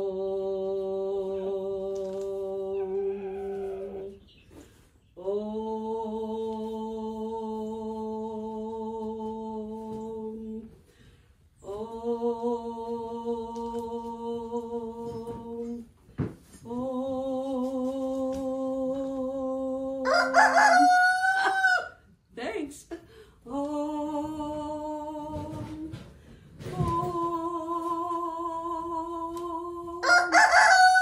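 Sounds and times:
woman singing held tones: 0:00.0 - 0:04.4, 0:11.6 - 0:15.9, 0:23.4 - 0:31.0
breaths: 0:04.5 - 0:05.1, 0:10.8 - 0:11.6, 0:23.0 - 0:23.5, 0:26.0 - 0:26.7.

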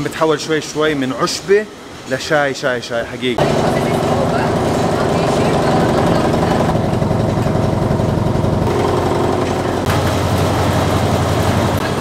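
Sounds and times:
fast mechanical throb: 0:03.4 - 0:12.0
machinery rumbling: 0:03.4 - 0:12.0.

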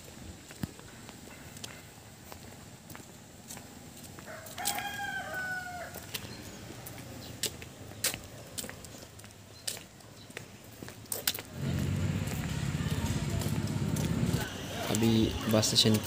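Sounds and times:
footsteps on paved road: 0:00.0 - 0:16.0
rooster crowing: 0:04.3 - 0:06.1.

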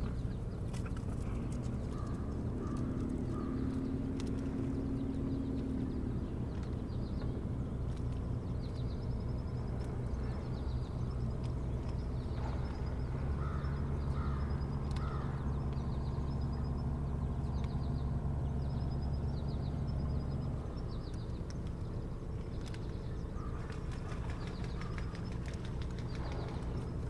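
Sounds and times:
distant motorboat engine drone: 0:00.0 - 0:27.0
harsh bird calls: 0:12.4 - 0:18.0, 0:22.7 - 0:27.0.

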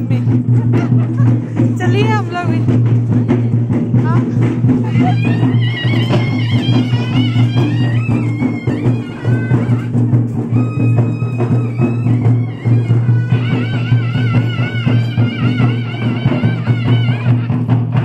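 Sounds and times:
drum beats: 0:00.0 - 0:18.0.

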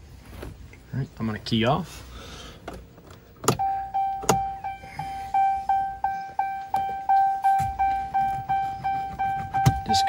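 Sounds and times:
vehicle warning chime dinging: 0:03.4 - 0:10.0.

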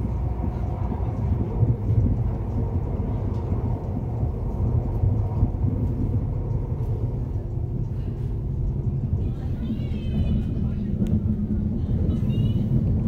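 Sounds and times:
train rumbling at speed: 0:00.0 - 0:13.0.

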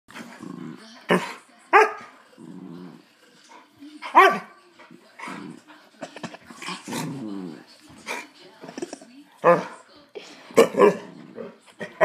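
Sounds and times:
dog growling: 0:00.1 - 0:01.4, 0:02.2 - 0:03.6, 0:05.2 - 0:08.2, 0:10.5 - 0:12.0.

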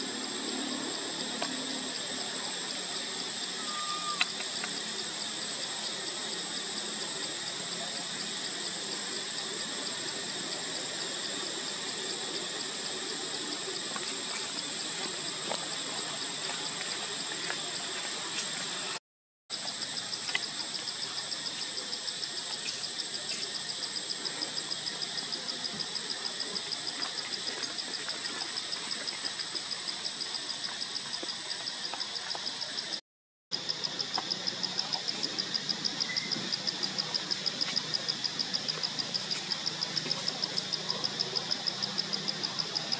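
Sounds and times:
insects high-pitched whine: 0:00.0 - 0:42.9
insects pulsing chirp: 0:00.0 - 0:42.9.

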